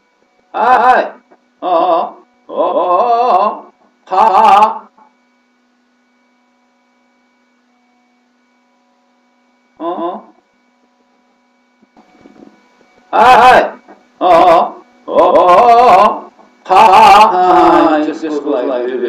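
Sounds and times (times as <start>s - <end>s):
electrical hum: 0.0s - 19.0s
faint steady tones: 0.0s - 19.0s
man's voice burst: 0.6s - 4.9s, 9.8s - 10.4s, 13.1s - 19.0s.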